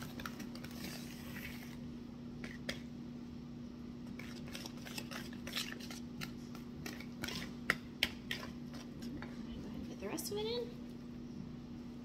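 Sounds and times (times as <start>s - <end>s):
whisk scraping in a bowl: 0.0s - 1.8s, 4.1s - 9.4s
steady low hum: 0.0s - 12.0s.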